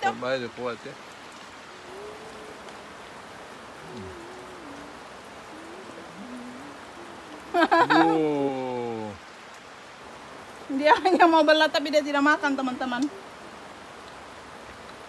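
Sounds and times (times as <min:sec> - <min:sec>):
rain on plastic roof: 0:00.0 - 0:15.0
faint low voices: 0:03.8 - 0:09.2.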